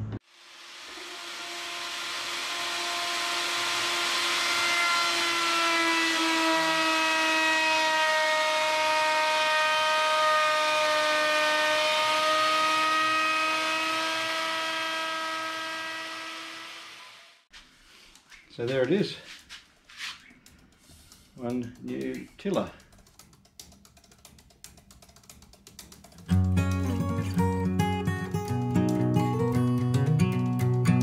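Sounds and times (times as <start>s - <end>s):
router whining while cutting wood: 0.7s - 17.4s.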